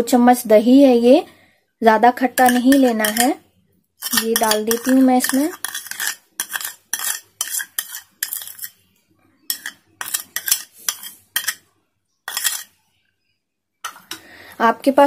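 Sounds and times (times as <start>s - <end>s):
metal spoon scraping bowl: 2.2s - 3.4s, 4.0s - 11.7s, 12.3s - 12.8s.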